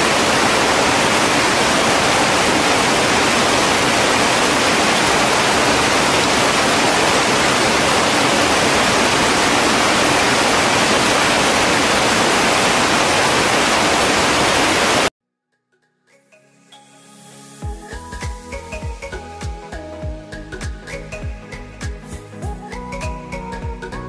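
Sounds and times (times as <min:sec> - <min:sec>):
floodwater rushing over rocks: 0:00.0 - 0:15.1.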